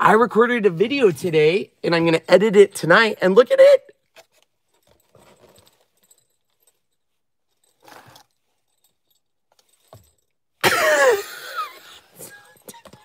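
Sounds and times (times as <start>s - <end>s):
small bells shaken: 7.6s - 13.0s.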